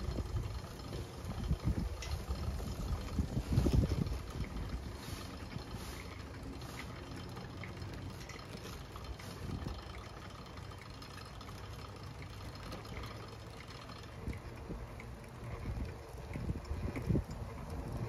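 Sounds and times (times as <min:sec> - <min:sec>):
wind on microphone: 0:00.0 - 0:06.0, 0:15.5 - 0:18.0
bicycle rolling along pavement: 0:00.0 - 0:18.0.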